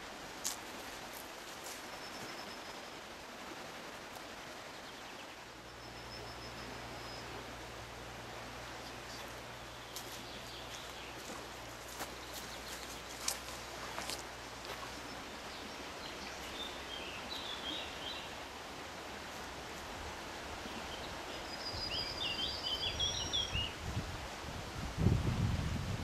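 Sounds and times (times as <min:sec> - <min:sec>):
steady background hiss: 0:00.0 - 0:26.0
small birds chirping: 0:08.6 - 0:18.5, 0:20.6 - 0:23.8.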